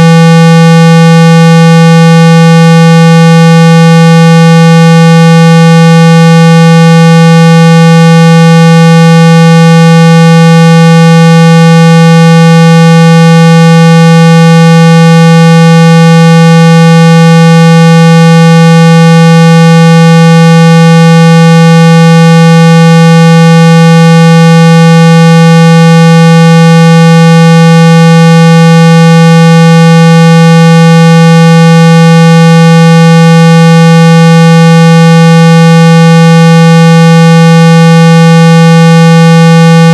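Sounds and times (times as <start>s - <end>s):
loud steady test tone: 0.0s - 39.9s.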